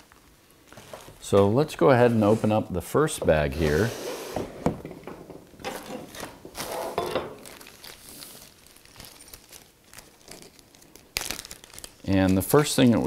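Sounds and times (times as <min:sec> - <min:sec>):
plastic bag crinkling: 0:05.7 - 0:13.0.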